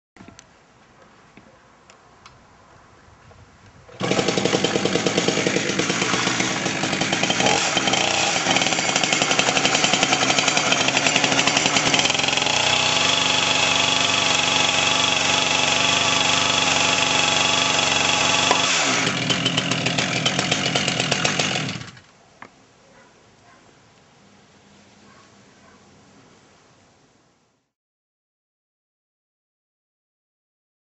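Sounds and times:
chainsaw running at high revs: 0:03.9 - 0:22.0.

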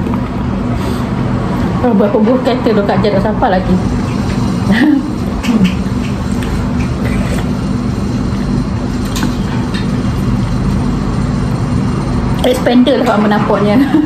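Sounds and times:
low mechanical hum: 0:00.0 - 0:14.0
utensils clicking against bowls: 0:05.4 - 0:07.6.

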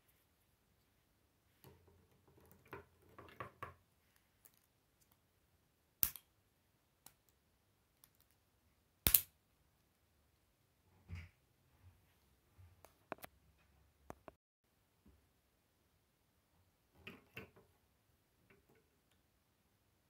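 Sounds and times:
plastic pieces snapping into place: 0:06.0 - 0:06.3, 0:09.0 - 0:09.3.

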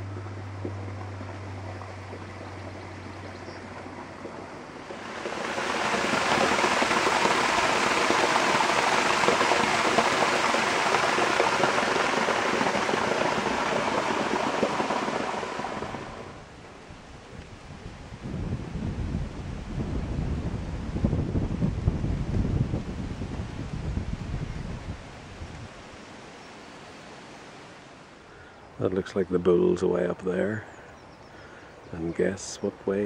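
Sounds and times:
water rushing: 0:00.0 - 0:17.2
low steady hum: 0:00.0 - 0:20.5.

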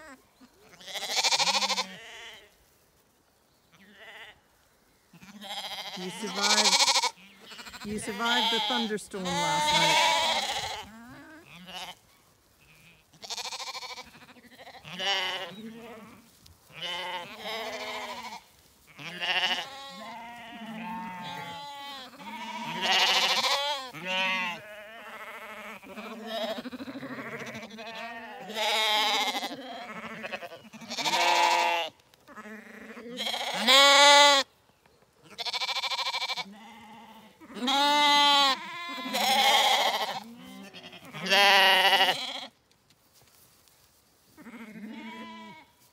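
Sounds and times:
lambs bleating: 0:00.0 - 0:02.5, 0:03.7 - 0:04.4, 0:05.2 - 0:12.0, 0:12.6 - 0:34.5, 0:35.2 - 0:42.5, 0:44.4 - 0:45.8.

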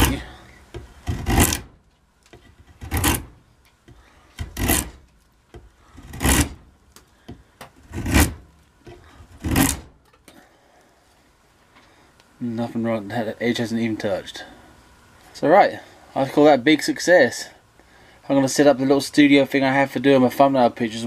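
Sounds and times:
draw knife shaving wood: 0:00.0 - 0:01.7, 0:02.3 - 0:03.3, 0:04.4 - 0:05.1, 0:06.0 - 0:06.6, 0:07.8 - 0:09.9.

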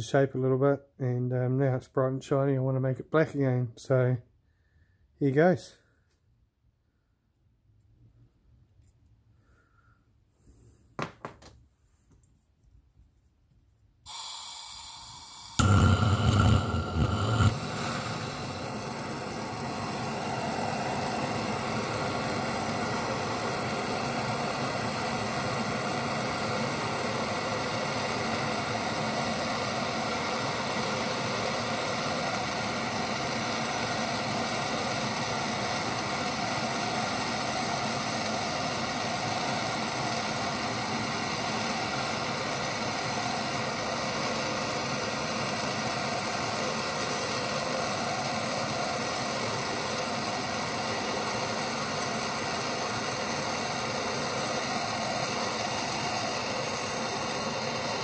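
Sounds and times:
gas torch hissing: 0:14.1 - 0:58.0.

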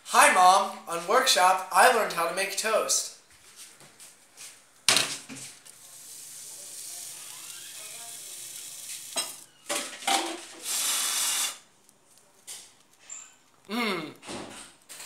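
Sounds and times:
burnt food sizzling: 0:03.5 - 0:15.0.

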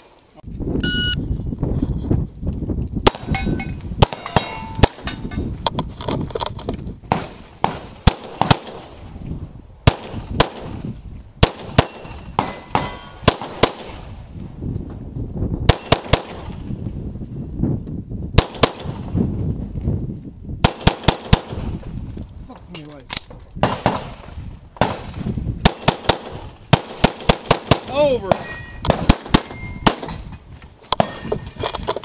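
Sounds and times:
pistol shots: 0:09.8 - 0:10.8, 0:11.4 - 0:14.1, 0:15.7 - 0:16.6, 0:23.6 - 0:24.2, 0:24.8 - 0:30.2.

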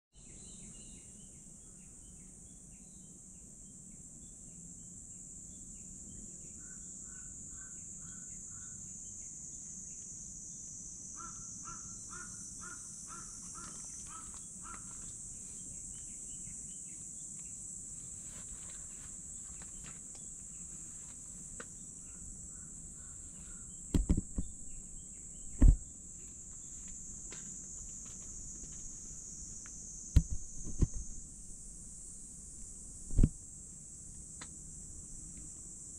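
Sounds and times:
cicadas droning: 0:00.1 - 0:35.9
crows cawing: 0:11.2 - 0:15.2, 0:22.1 - 0:23.7
loud thumps: 0:23.9 - 0:24.6, 0:25.5 - 0:25.8.

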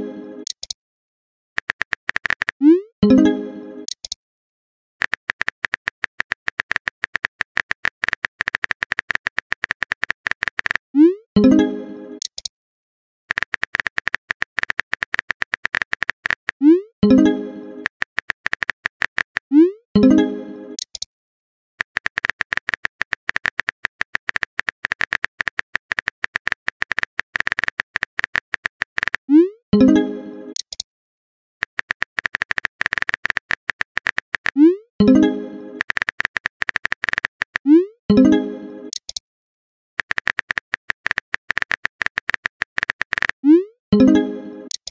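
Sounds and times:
keyboard typing clicks: 0:00.4 - 0:00.8, 0:01.6 - 0:03.2, 0:03.8 - 0:04.2, 0:05.0 - 0:10.8, 0:12.2 - 0:12.5, 0:13.3 - 0:19.5, 0:20.8 - 0:21.1, 0:21.8 - 0:30.8, 0:31.6 - 0:39.2, 0:40.0 - 0:43.4, 0:44.0 - 0:44.9
message chime: 0:03.0 - 0:03.8.

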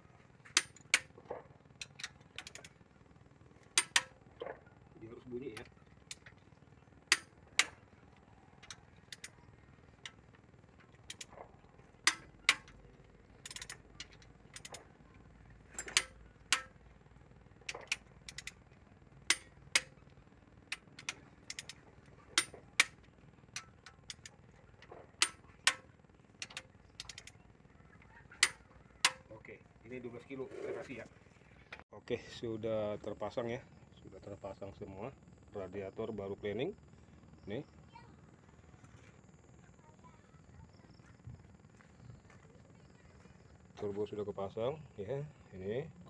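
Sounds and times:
torque wrench clicking: 0:00.5 - 0:01.2, 0:01.8 - 0:03.0, 0:03.6 - 0:04.3, 0:05.4 - 0:27.6, 0:28.3 - 0:29.3.

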